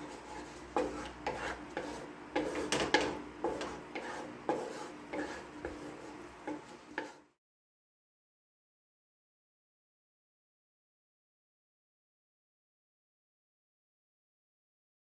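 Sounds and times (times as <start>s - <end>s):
spatula scraping sauce in wok: 0.0s - 7.4s.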